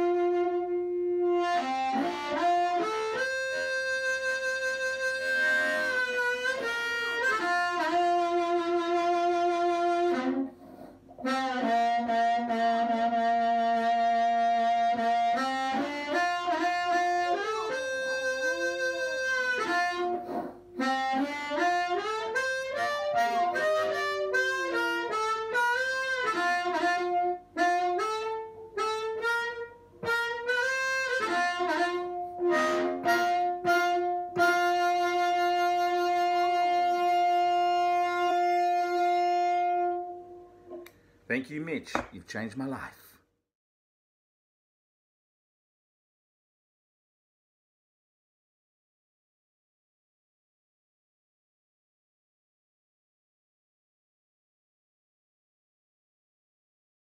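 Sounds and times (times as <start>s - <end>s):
amplified harmonica tune: 0.0s - 40.6s.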